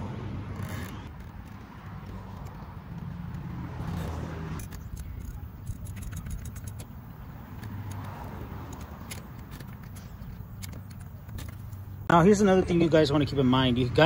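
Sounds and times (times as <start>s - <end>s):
hand tools clicking and rattling: 4.5s - 12.1s.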